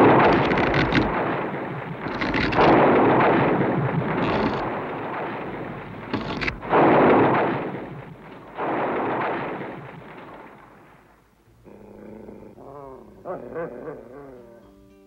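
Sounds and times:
big dog growling: 11.5 - 14.6
soft wavering music: 12.6 - 15.0.

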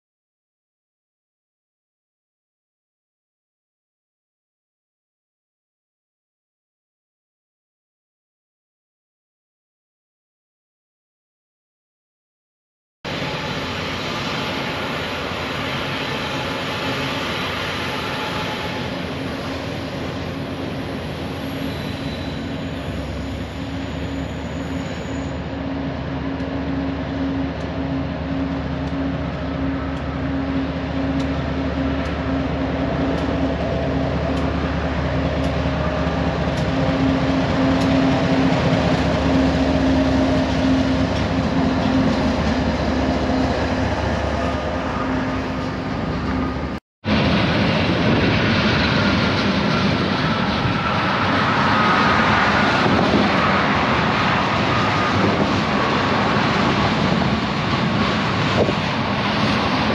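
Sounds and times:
diesel locomotive engines: 13.1 - 59.9.

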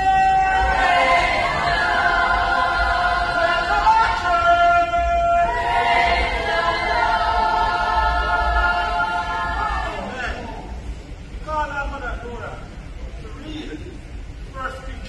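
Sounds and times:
group singing a chorus: 0.4 - 4.4, 5.3 - 10.8.

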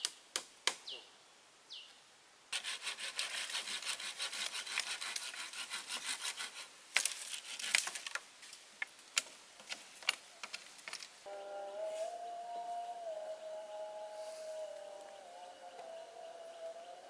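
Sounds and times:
hand saw cutting branch: 2.6 - 8.0
branch cracking: 6.9 - 11.2.

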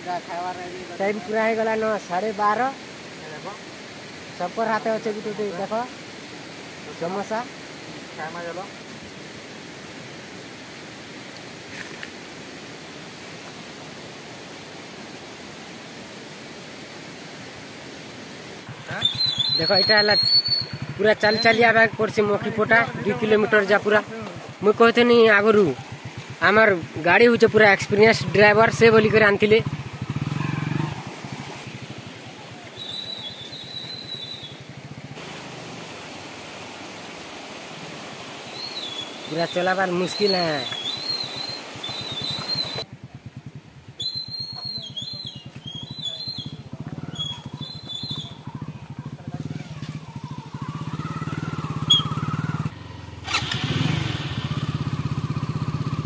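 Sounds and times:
stream water rushing: 0.0 - 42.9, 47.1 - 56.0
small motorcycle engine running: 20.0 - 24.7, 27.4 - 32.6, 33.6 - 35.5, 42.6 - 44.7, 46.3 - 56.0.

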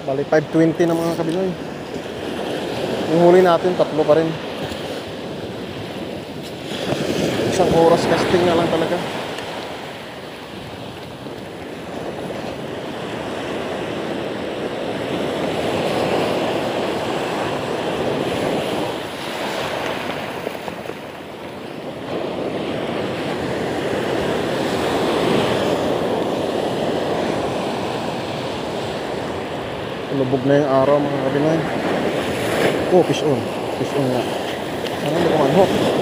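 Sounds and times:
sea surf breaking: 0.0 - 36.0.

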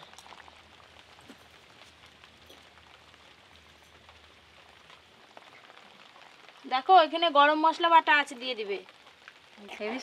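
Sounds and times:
faint steady hiss: 0.0 - 10.0.

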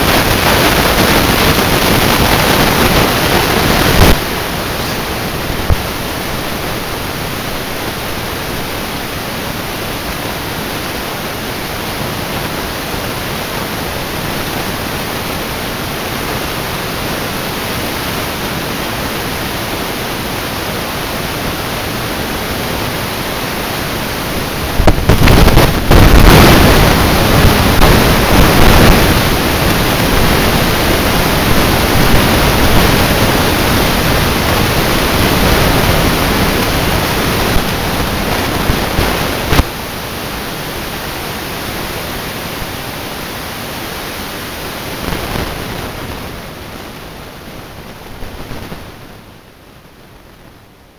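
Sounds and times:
wind buffeting microphone: 24.5 - 39.7.

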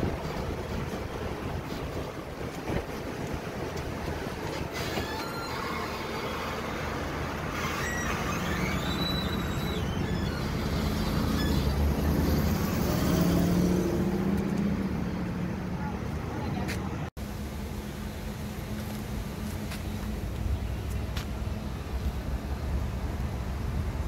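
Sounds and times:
large vehicle engine humming: 0.0 - 24.0
traffic noise: 0.0 - 24.0.

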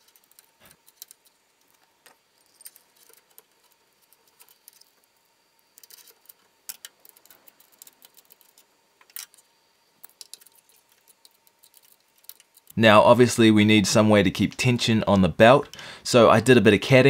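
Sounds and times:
faint clicks and rattles: 0.0 - 12.8.

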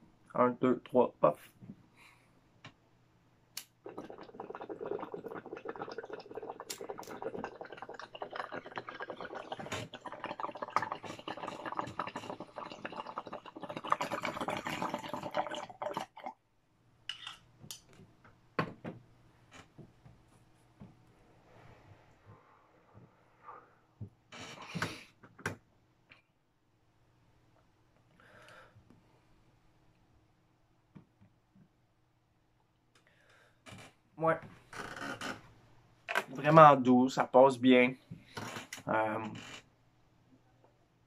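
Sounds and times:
water bubbling in bong: 3.6 - 16.4.

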